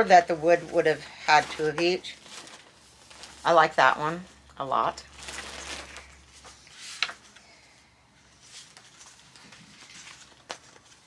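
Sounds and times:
paper sheets rustling: 0.0 - 3.8, 5.1 - 7.4, 8.3 - 11.0.

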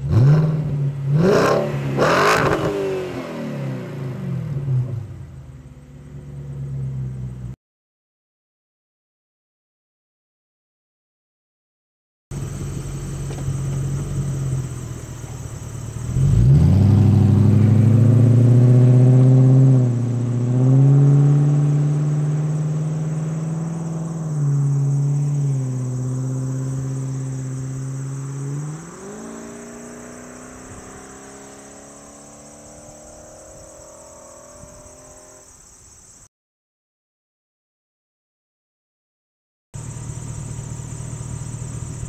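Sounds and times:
car engine accelerating and shifting: 0.0 - 7.6, 12.4 - 35.6, 39.8 - 42.0.

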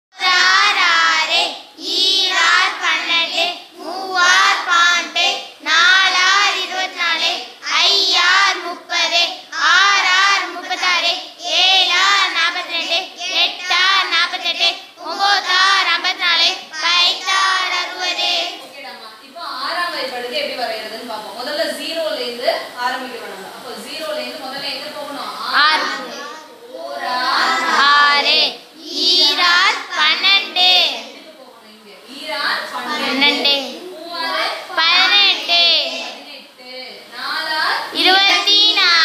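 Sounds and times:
children singing in unison: 0.2 - 18.6, 25.6 - 31.0.

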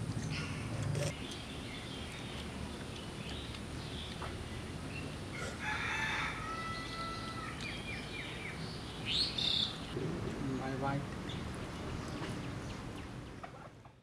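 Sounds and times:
rooster crowing: 5.3 - 7.6.

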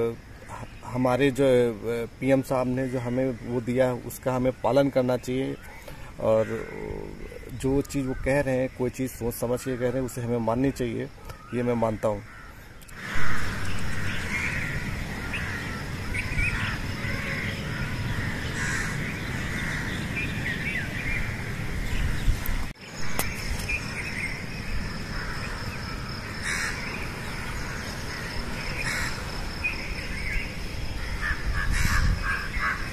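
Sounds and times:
birds chirping: 0.0 - 32.9
crows cawing: 5.6 - 7.5, 11.2 - 20.3, 25.0 - 29.3, 31.0 - 32.9.

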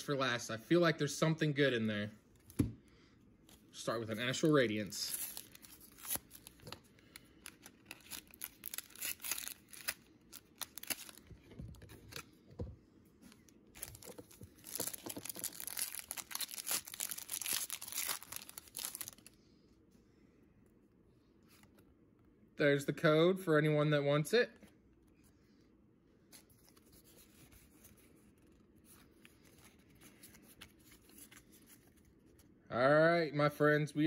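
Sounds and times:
foil wrapper tearing and crinkling: 4.4 - 11.3, 13.8 - 19.3.

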